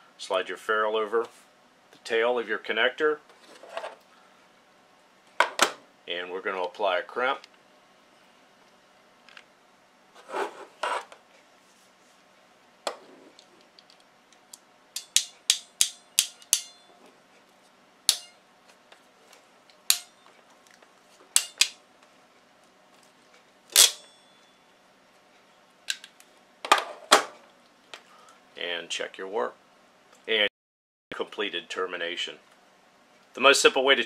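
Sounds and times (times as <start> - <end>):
ratcheting crimping tool clicking: 13.8 - 16.7.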